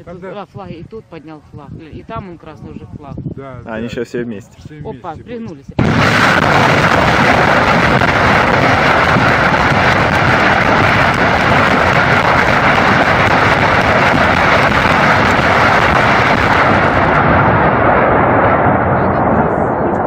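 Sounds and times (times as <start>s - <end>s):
rocket motors roaring: 5.8s - 20.0s.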